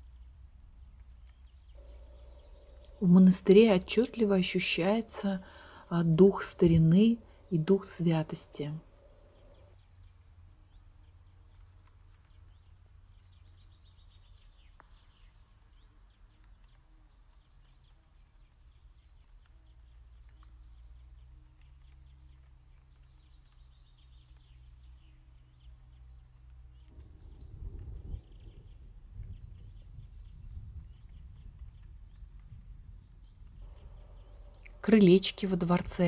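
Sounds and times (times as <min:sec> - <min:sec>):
low steady rumble: 0:00.0 - 0:10.8, 0:26.8 - 0:36.0
small birds chirping: 0:00.0 - 0:36.0.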